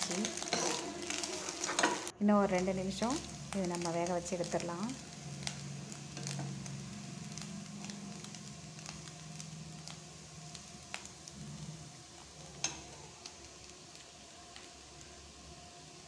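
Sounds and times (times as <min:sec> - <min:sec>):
spoon stirring and scraping pan: 0:00.0 - 0:02.1, 0:05.4 - 0:13.3
food sizzling in a pan: 0:00.0 - 0:16.0.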